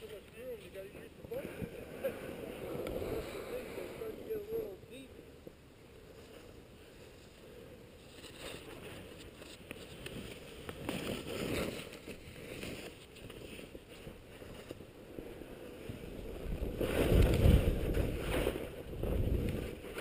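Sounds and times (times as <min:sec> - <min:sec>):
skis swishing over snow: 0:06.0 - 0:20.0.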